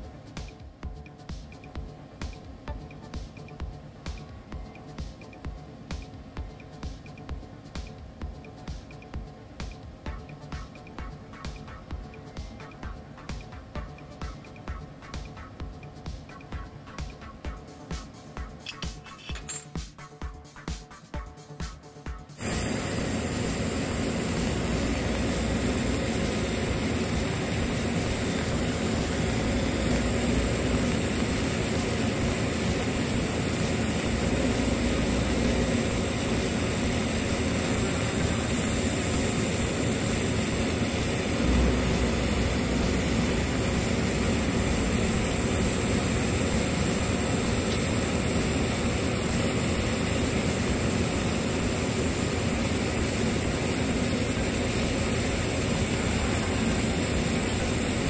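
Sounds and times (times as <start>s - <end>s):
welding arc hissing: 22.4s - 58.0s.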